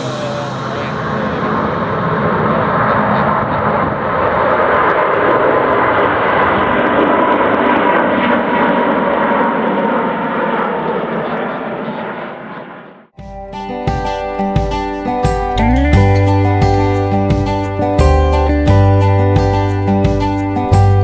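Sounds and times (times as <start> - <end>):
jet airliner climbing overhead: 0.0 - 13.2.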